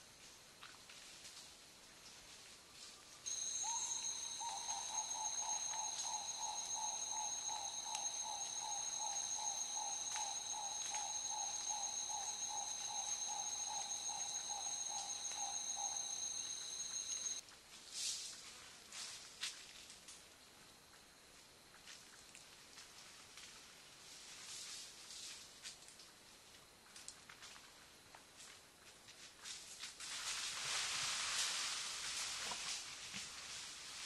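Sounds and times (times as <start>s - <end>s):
insect high-pitched shrill: 3.2s - 17.4s.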